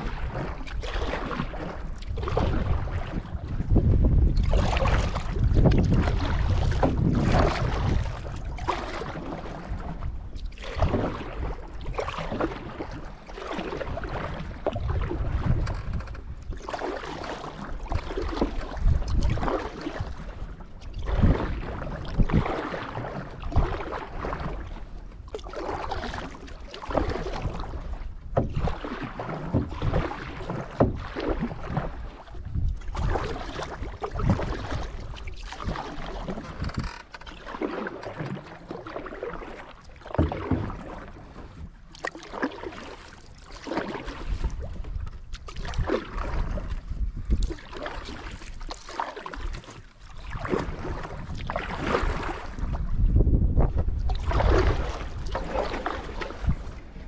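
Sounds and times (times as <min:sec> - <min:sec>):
wind rumble on microphone: 0:00.0 - 0:37.3, 0:43.8 - 0:57.0
paddle splashing water: 0:00.0 - 0:57.0.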